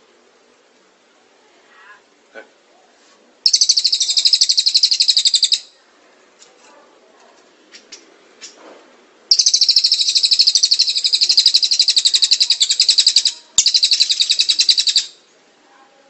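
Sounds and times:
songbird trilling: 3.4s - 5.8s, 9.3s - 15.2s.

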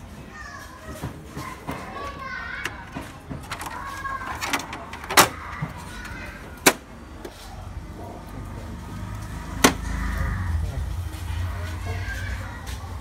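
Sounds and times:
plastic printer covers clacking shut: 4.3s - 5.4s, 6.6s - 6.9s.

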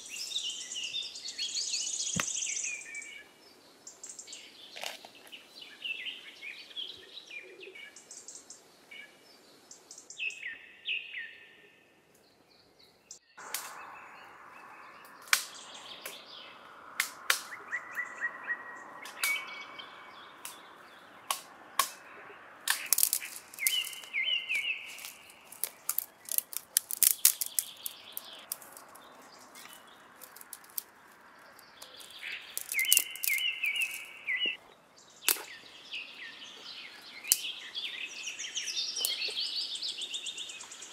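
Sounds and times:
small birds chirping: 0.0s - 40.9s
stones clicking: 22.7s - 24.2s, 24.9s - 34.3s
hand digging in stony earth: 22.7s - 34.5s.

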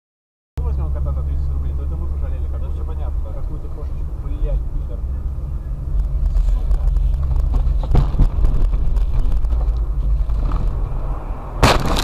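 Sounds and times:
car driving rumble: 0.6s - 12.0s
sharp bang: 11.6s - 12.0s.

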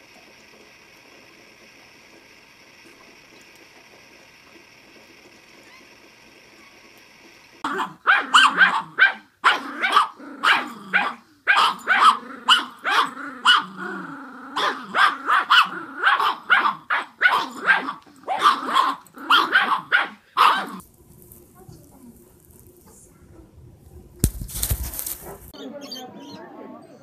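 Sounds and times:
small dogs growling and yapping: 7.6s - 20.8s.

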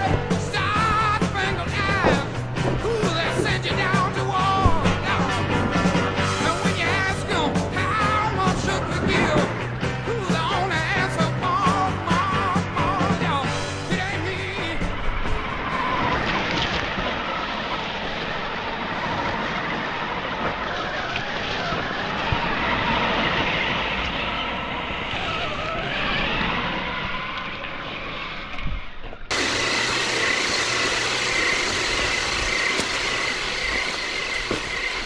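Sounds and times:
steady high whine: 0.0s - 15.0s, 29.2s - 35.0s
electric motor and gear whine: 0.0s - 35.0s.

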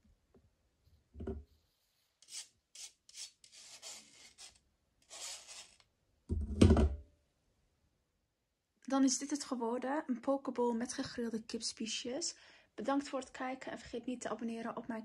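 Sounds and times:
dry rubbing and scraping: 1.5s - 5.8s.

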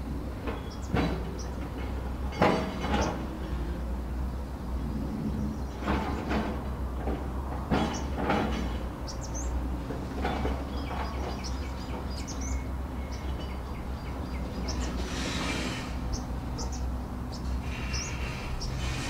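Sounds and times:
small birds chirping: 0.5s - 1.8s, 4.3s - 6.0s, 9.0s - 19.0s.

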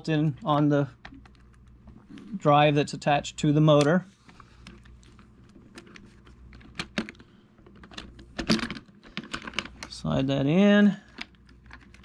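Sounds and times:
plastic and metal parts clicking: 5.7s - 10.0s.

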